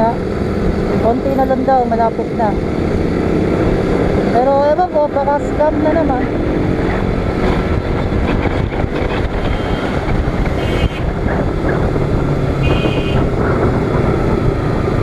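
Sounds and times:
wind rush on microphone: 2.6s - 15.0s
motorcycle engine running: 7.0s - 15.0s.

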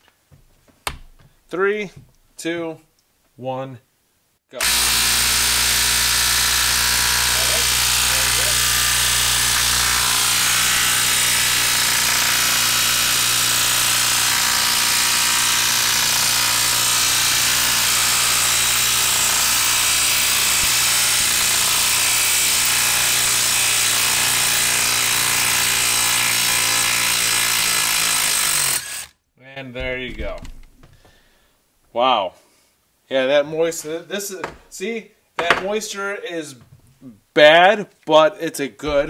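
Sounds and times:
cordless impact wrench hammering: 4.6s - 29.1s.

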